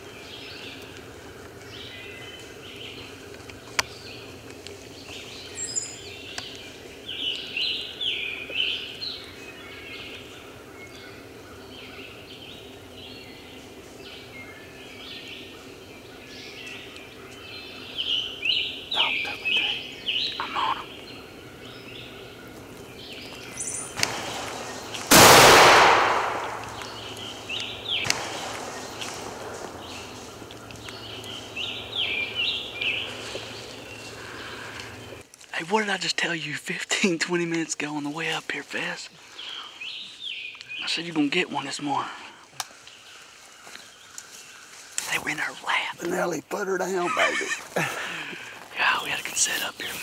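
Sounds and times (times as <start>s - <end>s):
songbirds chirping: 0.0s - 50.0s
shotgun blast: 25.1s - 26.8s, 28.0s - 29.4s.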